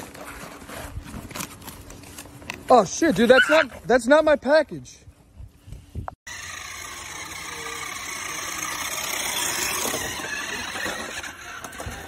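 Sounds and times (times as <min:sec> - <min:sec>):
toy truck motor whirring: 0:06.3 - 0:12.0.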